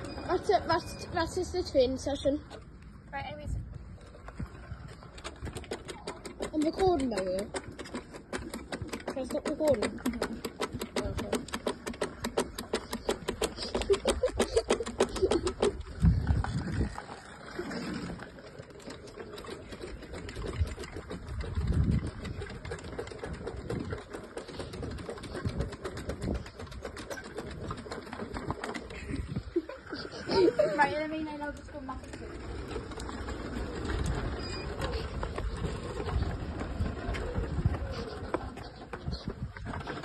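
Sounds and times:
rapid even clicking: 4.8 - 16.8, 18.4 - 30.1.

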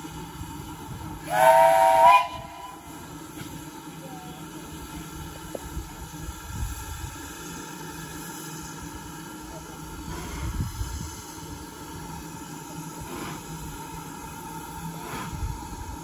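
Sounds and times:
steam locomotive whistle: 1.2 - 3.0.

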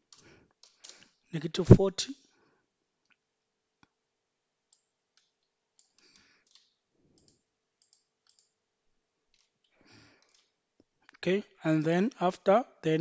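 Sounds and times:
faint keyboard clicks: 0.1 - 1.2, 4.7 - 8.6, 9.3 - 11.2
faint mouse clicks: 4.7 - 8.6, 9.3 - 11.2.

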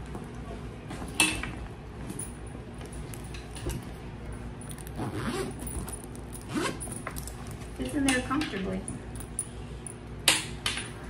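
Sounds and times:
metal rings and zippers jingling: 2.2 - 7.9
bag rustling: 2.9 - 7.8.

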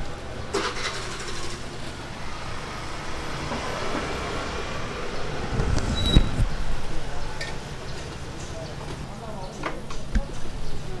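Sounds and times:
busy market rumble: 0.0 - 11.0
food clattering at stall: 0.5 - 2.0.

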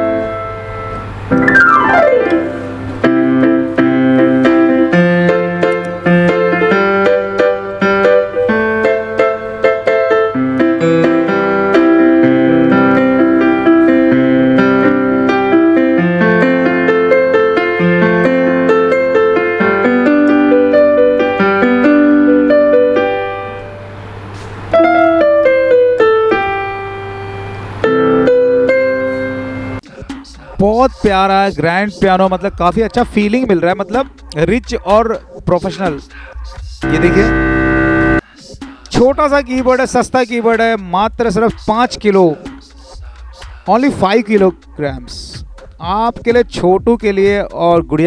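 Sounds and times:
keyboard piano playing: 0.0 - 30.0, 36.8 - 38.3.

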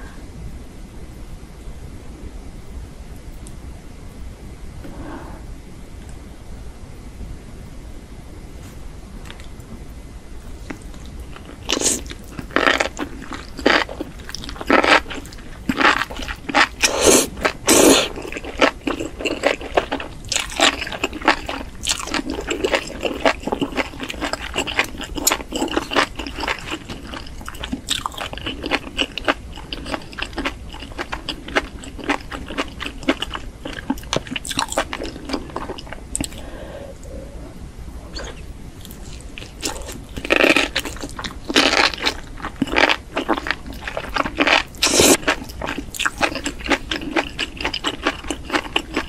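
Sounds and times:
wet crunchy chewing: 10.6 - 36.4, 38.1 - 49.0
chewing clicks and smacks: 38.2 - 49.0.

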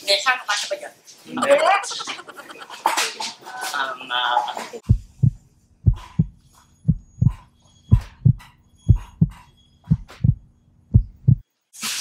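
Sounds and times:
heartbeat thumps: 4.8 - 11.5.

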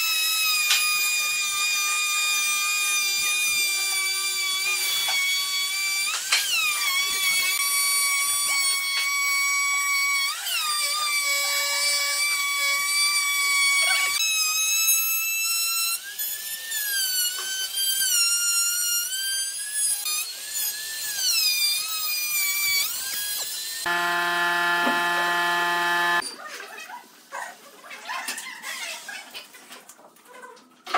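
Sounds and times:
low hum: 23.9 - 26.2
trim router high whine: 23.9 - 26.2.

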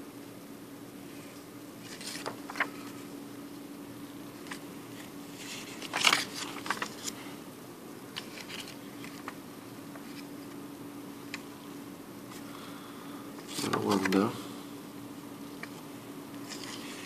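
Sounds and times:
paper banknotes rustling: 1.8 - 3.1, 4.3 - 7.4, 8.1 - 10.4, 13.4 - 14.4, 16.4 - 17.0.

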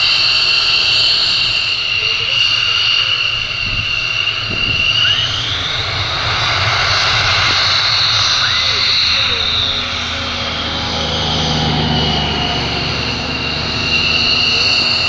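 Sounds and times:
jet engine whine: 0.0 - 15.0
low rumble: 3.0 - 15.0.

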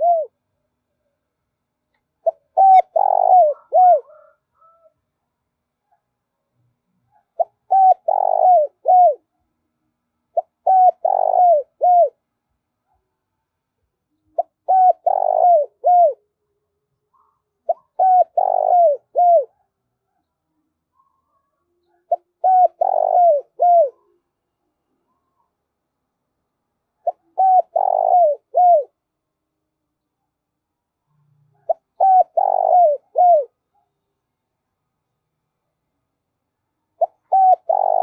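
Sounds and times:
dove cooing: 0.0 - 0.4, 2.2 - 5.0, 7.1 - 9.3, 10.4 - 12.2, 14.2 - 16.3, 17.1 - 20.2, 21.0 - 24.2, 27.0 - 29.0, 31.4 - 33.6, 37.0 - 38.0.

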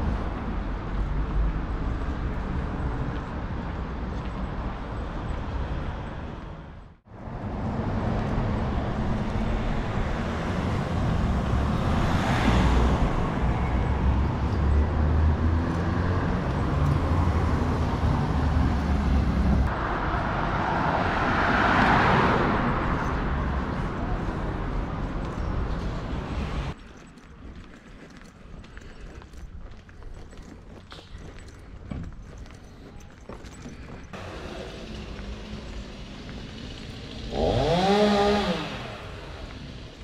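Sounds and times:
cars going by: 0.0 - 26.8, 33.0 - 40.0
vehicle passing close: 34.2 - 40.0.

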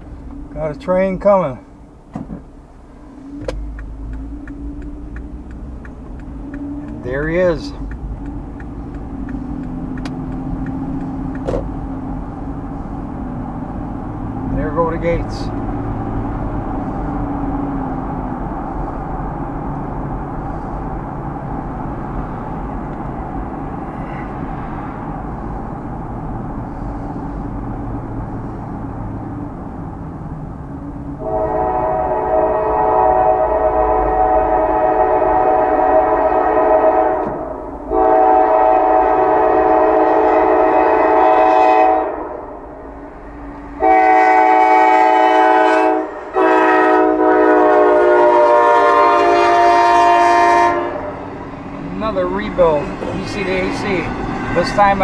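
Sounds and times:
car road noise: 0.0 - 55.0
locomotive air horn blasts: 31.2 - 42.6, 43.7 - 51.3.

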